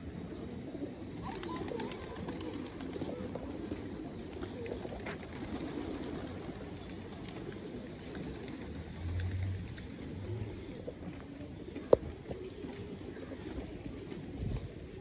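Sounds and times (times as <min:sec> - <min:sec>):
pigeons cooing: 0:00.0 - 0:15.0
wings flapping: 0:01.2 - 0:10.3.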